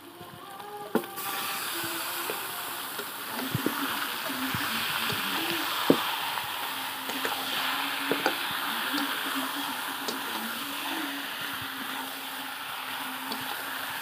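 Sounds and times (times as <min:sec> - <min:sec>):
chicken sizzling in oil: 0:00.0 - 0:14.0.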